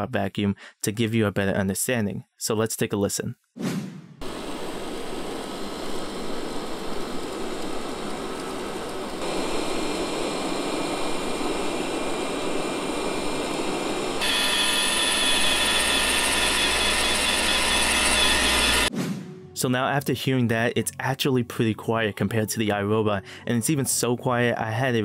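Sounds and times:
robot vacuum running on carpet: 4.2 - 18.9
robot vacuum with high whine: 4.2 - 18.9.

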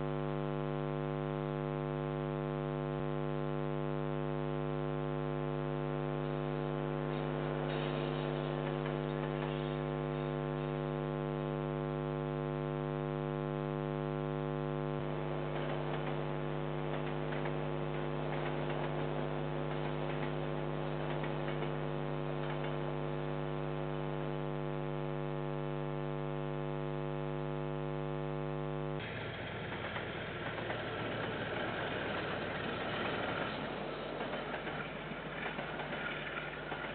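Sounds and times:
electrical mains hum: 0.0 - 36.9
diesel freight train passing: 29.0 - 36.9.

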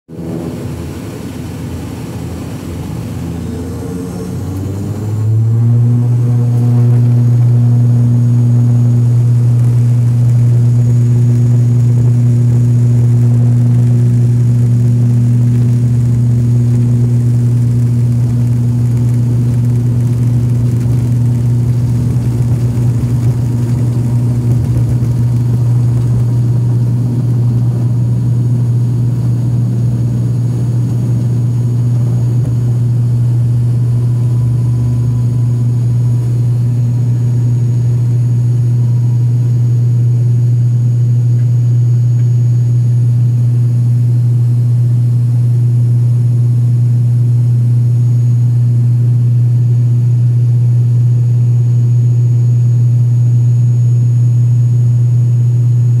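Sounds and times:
propeller engines droning: 0.1 - 43.6
runway rumble: 17.6 - 39.1.

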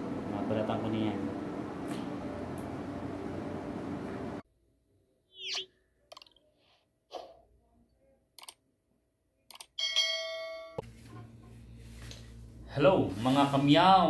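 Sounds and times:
bell-like notification ding: 9.8 - 10.8.

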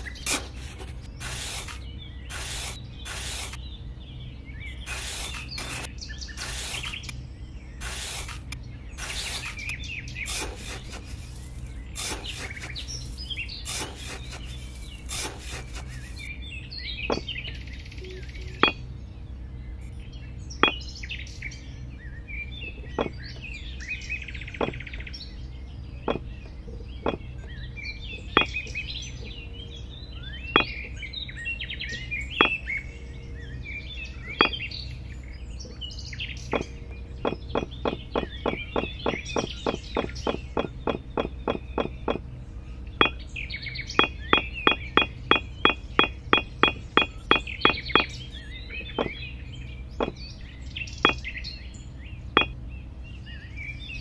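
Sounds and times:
trowel scraping damp sand: 0.0 - 3.6, 4.9 - 7.1, 7.8 - 16.3
birds chirping: 0.0 - 54.0.

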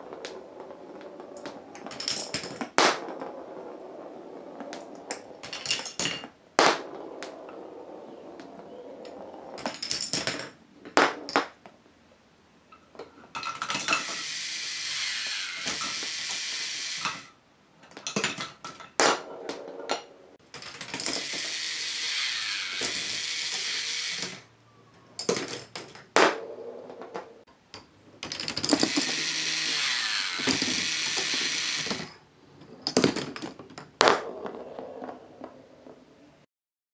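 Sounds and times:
balls rolling: 0.0 - 12.0, 12.7 - 36.5
plastic balls clicking: 0.1 - 3.3, 13.0 - 19.6, 20.5 - 24.5, 27.0 - 32.2.

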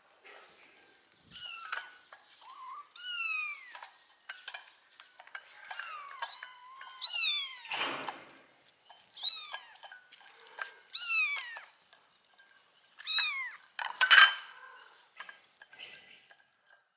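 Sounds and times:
kittens meowing: 1.3 - 3.8, 5.6 - 7.8, 10.8 - 11.7, 13.0 - 13.7.

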